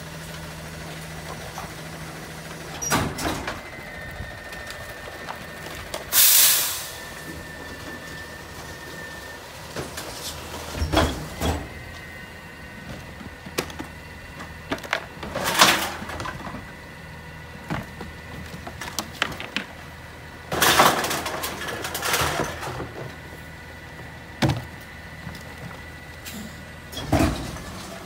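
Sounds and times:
garbage truck idling with whine: 0:00.0 - 0:28.0
recyclables clattering into hopper: 0:12.9 - 0:16.7, 0:20.5 - 0:23.2, 0:27.0 - 0:28.0.

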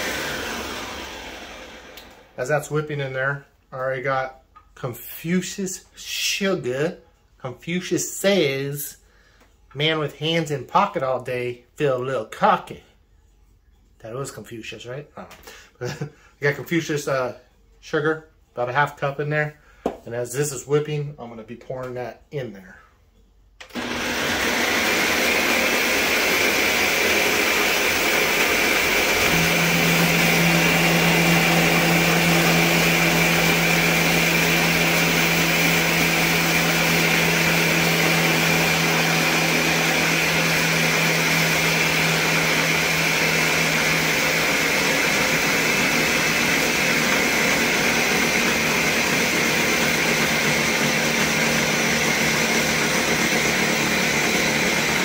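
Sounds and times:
blender running: 0:00.0 - 0:02.4, 0:23.6 - 0:55.0.

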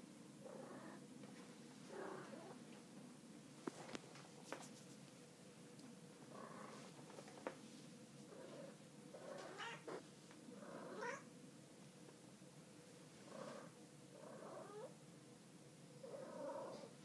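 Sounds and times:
cat meowing: 0:09.4 - 0:10.0, 0:10.9 - 0:11.2.

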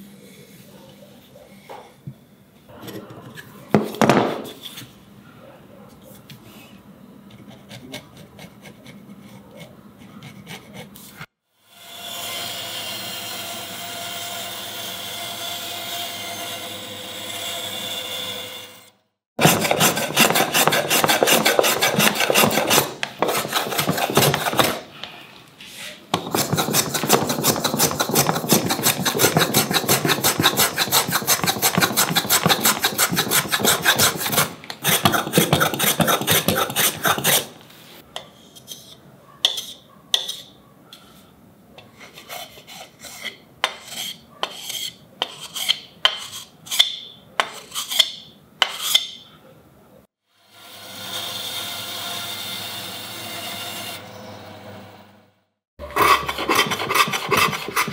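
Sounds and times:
hand tool scraping wood: 0:07.3 - 0:11.3, 0:19.4 - 0:37.6, 0:38.2 - 0:41.2, 0:41.9 - 0:49.2, 0:55.8 - 0:57.9.

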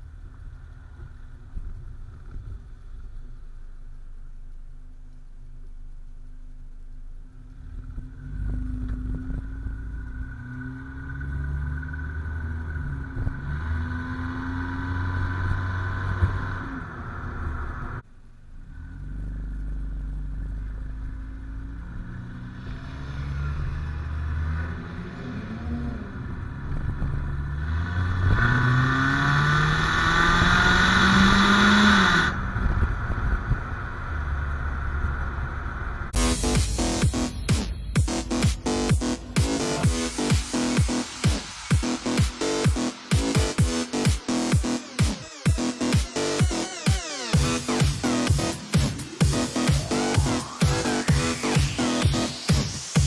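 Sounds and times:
wind and road noise: 0:00.0 - 0:36.2, 0:36.8 - 0:43.2
car engine and exhaust accelerating: 0:00.0 - 0:53.0
music: 0:36.2 - 0:53.0.

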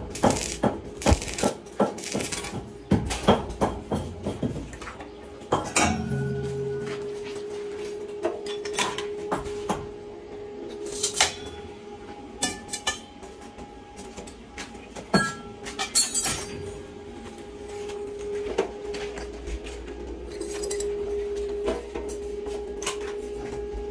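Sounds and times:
steady hum: 0:00.0 - 0:03.8.

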